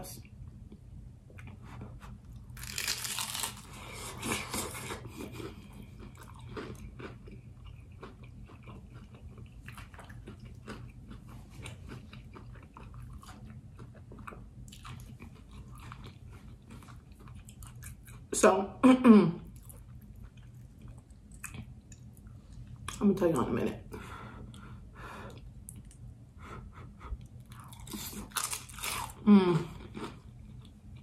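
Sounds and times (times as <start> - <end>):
crunchy chewing: 1.4 - 18.3, 27.2 - 31.0
crunch of crisp wrapper: 2.6 - 4.9, 27.7 - 29.2.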